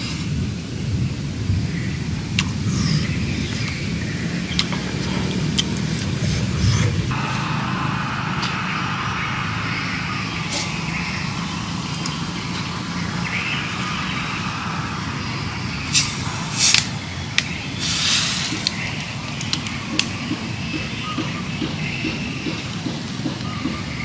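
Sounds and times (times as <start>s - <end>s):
low outdoor rumble: 0.0s - 21.7s
carbonated drink fizzing hiss: 7.2s - 18.9s.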